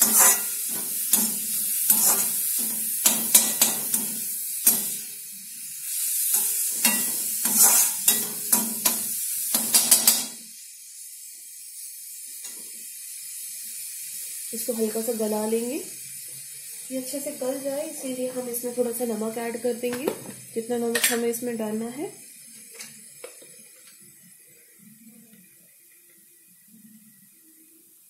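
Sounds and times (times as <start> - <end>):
metal spatula scraping a pan: 0.0 - 5.0, 6.2 - 9.0
vegetables sizzling in oil: 0.0 - 28.0.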